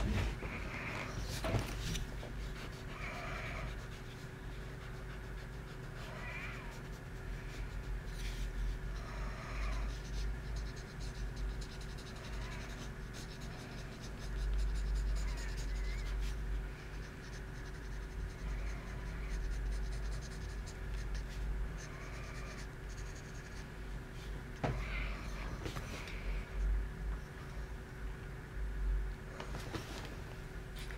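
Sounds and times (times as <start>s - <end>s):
steady low hum: 0.0s - 30.9s
pencil scratching on paper: 2.2s - 23.7s.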